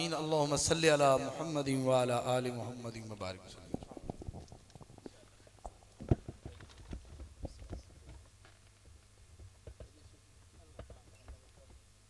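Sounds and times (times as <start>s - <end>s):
faint low hum: 0.0s - 12.0s
microphone handling knocks and rubs: 3.6s - 10.0s.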